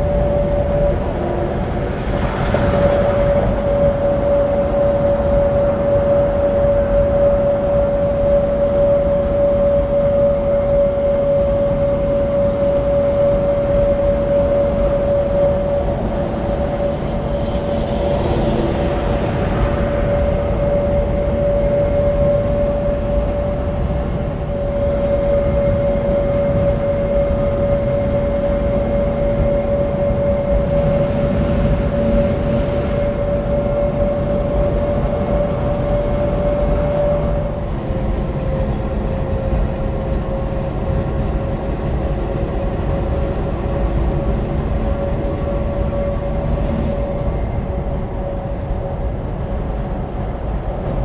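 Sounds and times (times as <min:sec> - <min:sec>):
highway traffic noise: 0:00.0 - 0:07.0, 0:15.7 - 0:25.1, 0:43.2 - 0:50.9
constant droning tone: 0:00.0 - 0:51.0.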